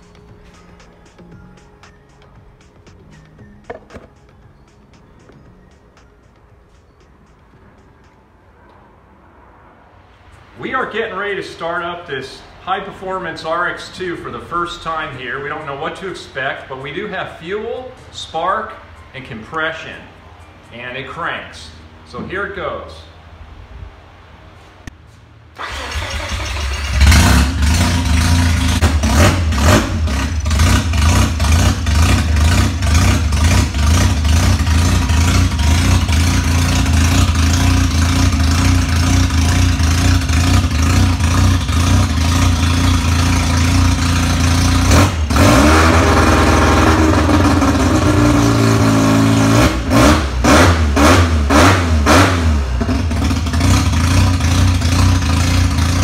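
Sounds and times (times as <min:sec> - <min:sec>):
starter motor cranking: 0:25.6 - 0:28.2
rotary engine running loud: 0:26.9 - 0:56.0.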